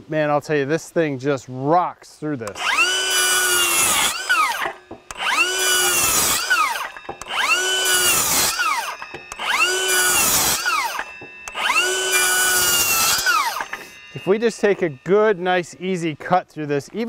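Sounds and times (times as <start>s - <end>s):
circular saw cutting wood: 2.4s - 16.7s.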